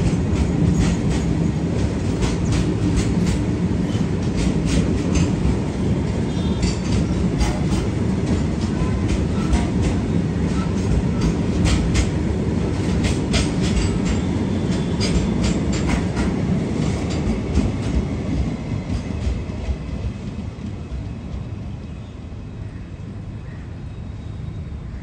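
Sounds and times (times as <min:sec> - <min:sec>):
train clanks and clicks: 0:00.0 - 0:22.2
train wheels rumbling on rail: 0:00.0 - 0:23.4.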